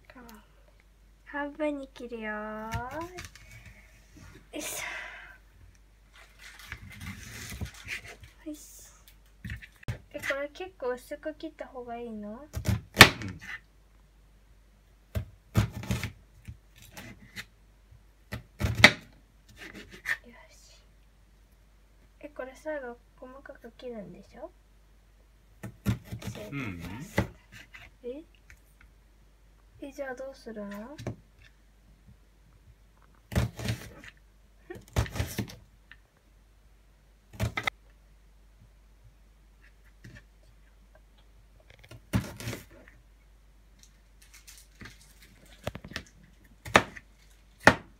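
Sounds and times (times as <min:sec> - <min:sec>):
knife cutting onion on board: 0:15.2 - 0:16.2, 0:18.3 - 0:20.2, 0:25.6 - 0:27.9, 0:33.3 - 0:34.1, 0:34.8 - 0:35.6, 0:37.4 - 0:37.7, 0:41.9 - 0:42.8, 0:46.6 - 0:47.0, 0:47.6 - 0:47.9
knife chopping on cutting board: 0:46.7 - 0:47.0, 0:47.6 - 0:47.9.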